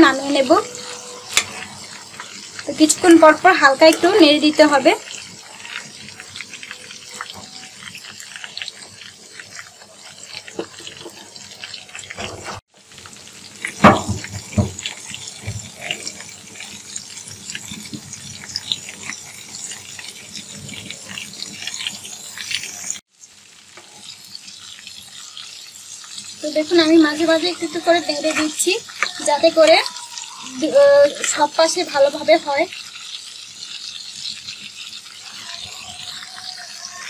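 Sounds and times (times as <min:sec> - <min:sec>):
ladle stirring in pot: 0:00.0 - 0:12.6, 0:23.7 - 0:31.8
chicken deep-frying in oil: 0:00.0 - 0:37.0.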